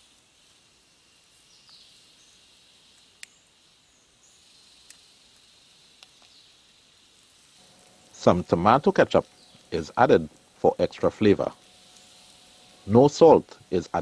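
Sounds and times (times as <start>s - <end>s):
insects hissing: 0.0s - 14.0s
faint bird chirps: 1.1s - 6.8s, 9.0s - 9.9s
sharp ticks: 4.8s - 6.4s.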